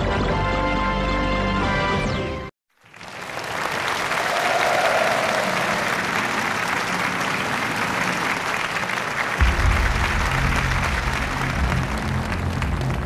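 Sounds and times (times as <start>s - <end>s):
audience applauding: 2.8s - 13.0s
music with deep bass notes: 9.4s - 13.0s.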